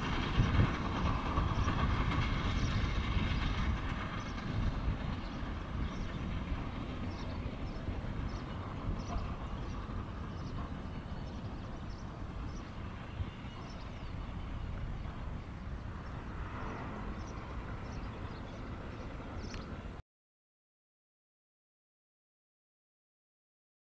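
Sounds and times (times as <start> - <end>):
helicopter rotors turning: 0.0 - 20.0
faint ticks: 19.4 - 19.7.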